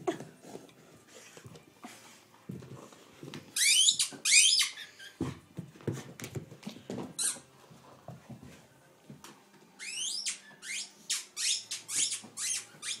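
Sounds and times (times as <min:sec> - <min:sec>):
squeaky dog toy squeaking: 0:03.6 - 0:05.1, 0:09.8 - 0:13.0.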